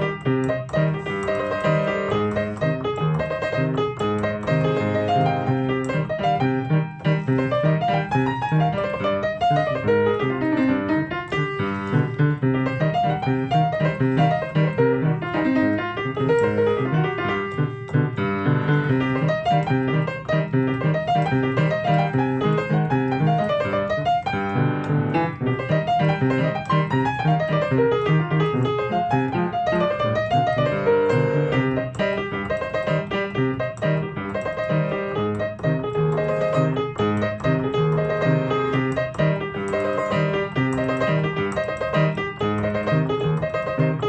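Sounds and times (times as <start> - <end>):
piano playing salsa: 0.0 - 44.0.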